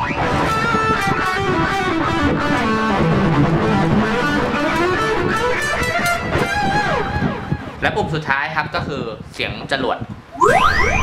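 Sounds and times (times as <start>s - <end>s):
electric guitar with effects: 0.0s - 7.8s, 10.3s - 11.0s.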